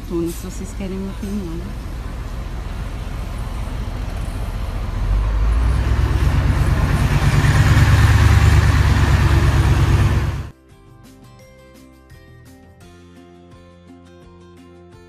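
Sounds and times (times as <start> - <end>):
diesel bus engine rumbling: 0.0 - 10.5.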